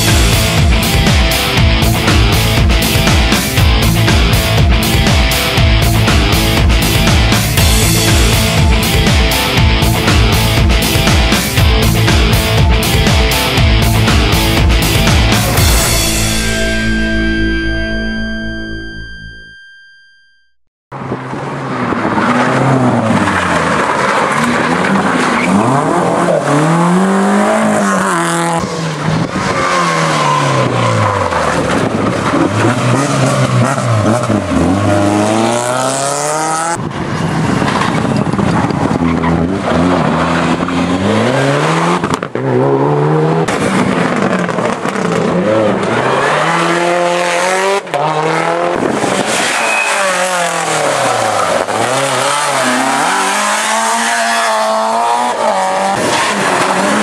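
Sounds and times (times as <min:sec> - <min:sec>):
rally car engines accelerating: 0:21.0 - 0:57.0.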